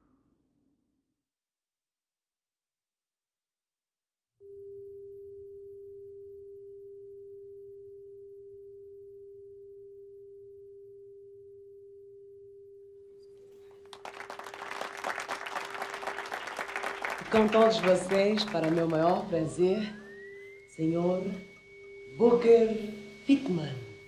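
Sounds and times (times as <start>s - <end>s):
crowd applauding: 13.7s - 20.2s
steady pure tone: 13.9s - 24.0s.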